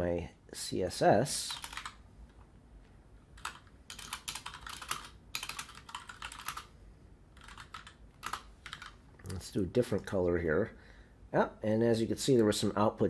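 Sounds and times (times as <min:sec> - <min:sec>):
typing on computer keyboard: 0:01.5 - 0:02.0, 0:03.4 - 0:06.7, 0:07.4 - 0:09.0.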